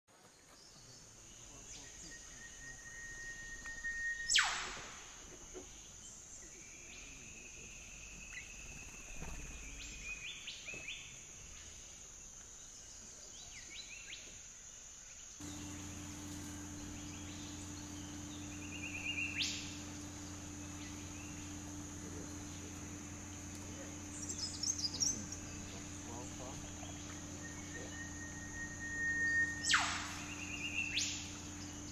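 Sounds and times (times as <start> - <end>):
insect drone: 0.8 - 31.9
bird chirps and calls: 15.4 - 31.9
steady low hum: 15.4 - 31.9.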